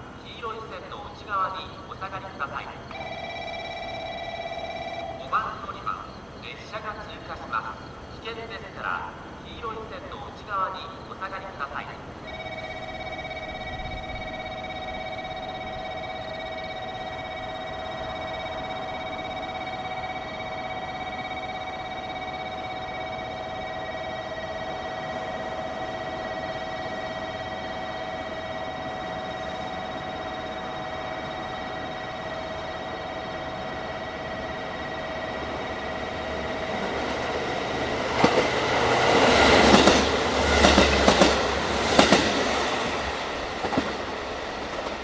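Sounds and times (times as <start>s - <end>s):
electronic train warning alarm: 0.0s - 45.0s.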